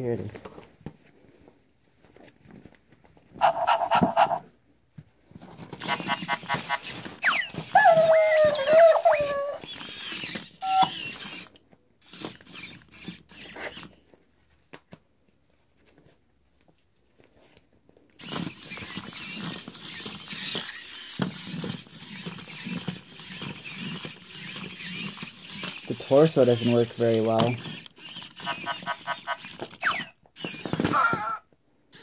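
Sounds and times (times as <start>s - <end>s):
gear motors whirring: 5.8s - 13.9s, 18.2s - 31.4s
squeaky electronic sound effects: 10.6s - 11.0s, 28.4s - 30.2s.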